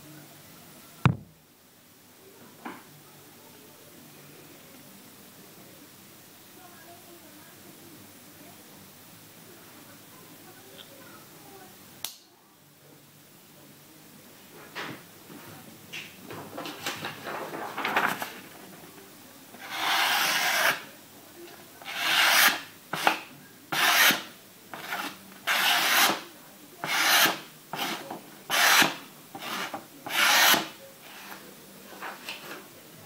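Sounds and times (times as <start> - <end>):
paper rustling: 16.4 - 18.9
knife slicing paper: 19.6 - 20.8, 21.8 - 26.2, 26.8 - 30.8.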